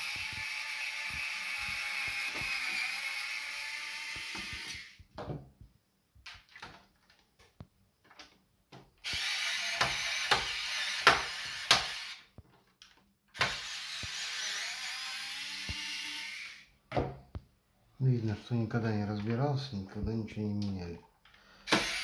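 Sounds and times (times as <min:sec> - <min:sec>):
electric screwdriver running: 0:00.0 - 0:05.0, 0:09.0 - 0:12.2, 0:13.4 - 0:16.7, 0:21.7 - 0:22.0.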